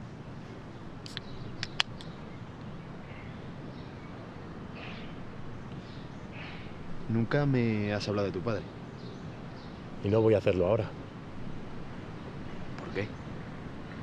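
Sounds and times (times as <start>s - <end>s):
low background hiss: 0.0s - 14.0s
faint bird calls: 0.4s - 9.9s.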